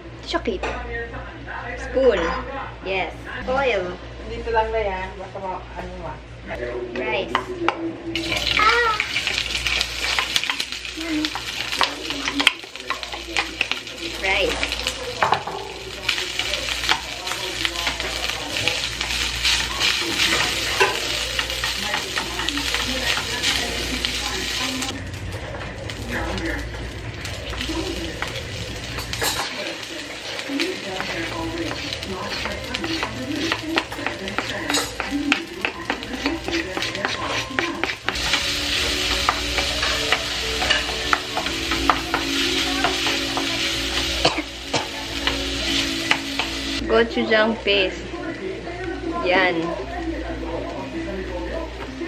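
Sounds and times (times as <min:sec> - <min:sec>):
spatula stirring and scraping: 0:08.2 - 0:25.0, 0:27.4 - 0:46.5
rice sizzling in frying pan: 0:08.2 - 0:48.4
wooden spatula scraping pan: 0:30.2 - 0:43.6.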